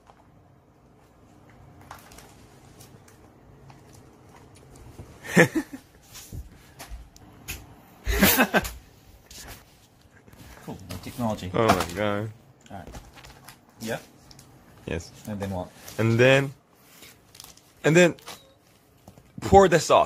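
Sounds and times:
plastic film rustling and crackling: 1.3 - 5.1, 9.3 - 20.0.

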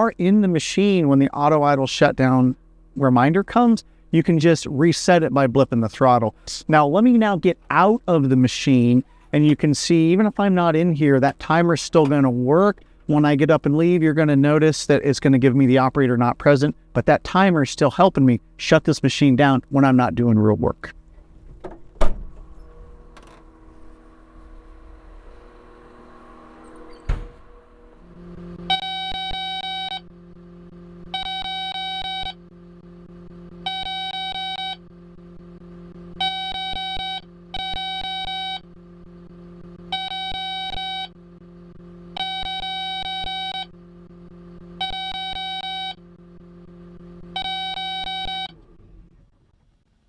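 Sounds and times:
diesel engine idling: 0.0 - 19.8, 22.5 - 50.0
thump: 21.4 - 22.5, 27.0 - 27.5
warning alarm beeping: 28.1 - 48.6.

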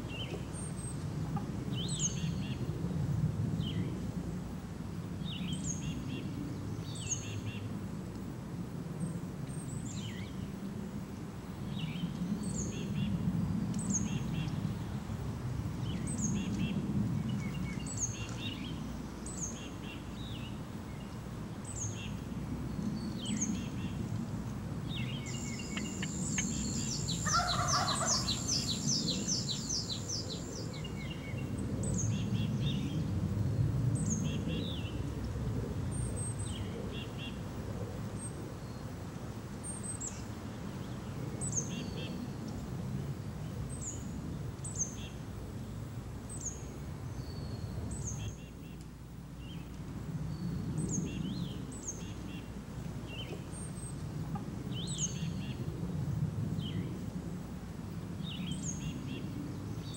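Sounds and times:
songbird high chirp: 1.7 - 2.6, 15.8 - 24.0, 24.9 - 33.0, 39.6 - 42.6, 54.7 - 55.6
turkey gobbling: 27.2 - 28.8.

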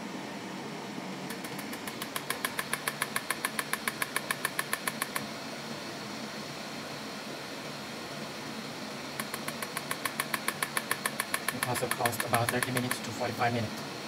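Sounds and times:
machine humming: 0.0 - 14.0
rapid electric pulse clicking: 1.3 - 5.3, 9.2 - 13.1.

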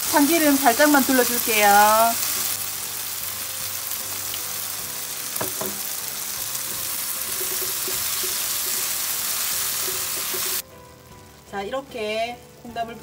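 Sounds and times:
food sizzling in a frying pan: 0.0 - 13.0
spatula stirring in a pan: 5.6 - 10.6.

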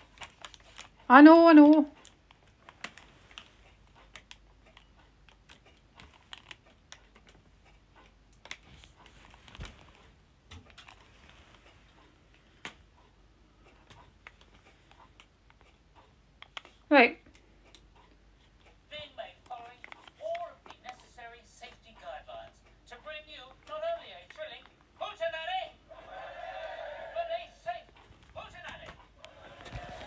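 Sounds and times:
faint irregular clicks and taps: 0.0 - 18.8, 19.4 - 21.1.

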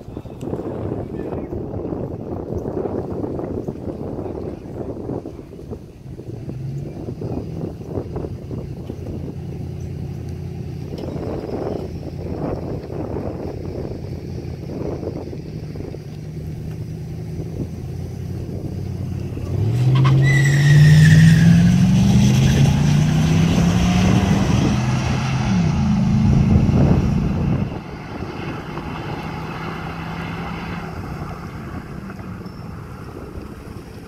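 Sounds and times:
truck engines accelerating: 0.0 - 34.0
tire squeal: 19.0 - 33.9.

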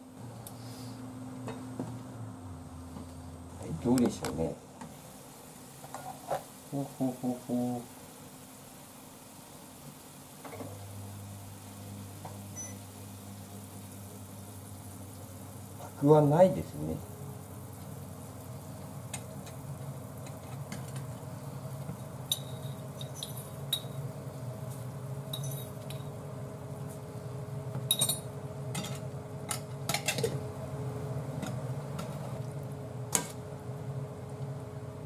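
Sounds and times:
induction cooktop hum: 0.0 - 35.0
utensils clinking on saucepan: 22.3 - 24.0, 25.3 - 26.1, 27.8 - 30.4.

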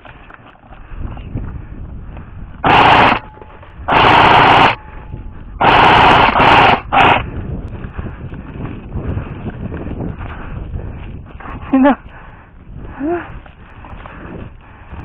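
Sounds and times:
airsoft rifle full-auto bursts: 2.6 - 3.3, 3.9 - 4.8, 5.6 - 7.2.

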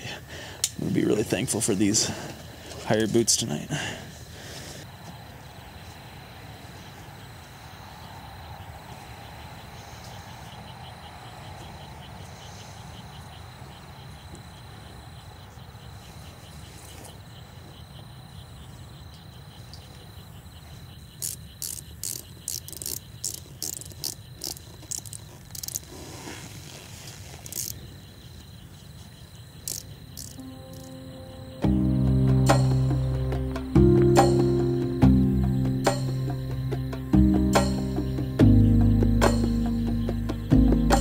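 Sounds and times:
crickets chirping: 0.0 - 41.0
sharp scratchy rasps: 21.2 - 27.8, 29.6 - 30.9.

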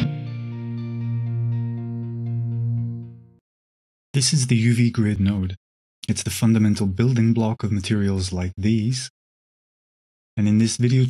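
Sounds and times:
ambient music chords: 0.0 - 3.4.

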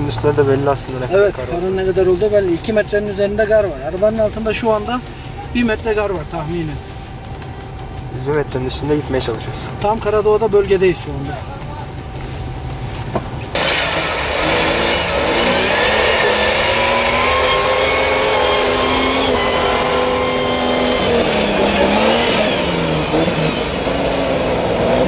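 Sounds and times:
car engine revving: 0.0 - 25.0
steady rush of noise: 0.0 - 25.0.

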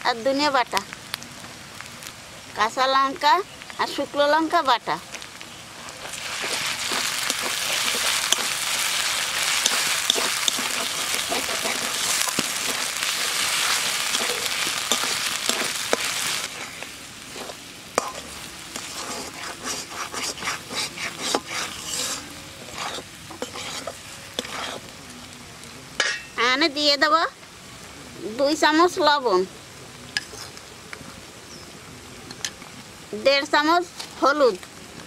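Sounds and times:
spice paste sizzling in oil: 0.0 - 35.0
spatula scraping a metal pan: 9.6 - 13.3, 17.4 - 24.9.

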